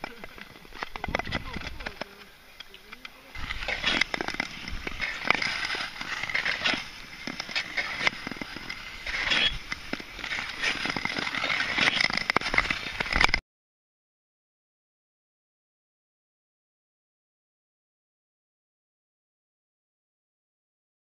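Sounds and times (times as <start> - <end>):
skate blades scraping on ice: 2.9 - 13.4.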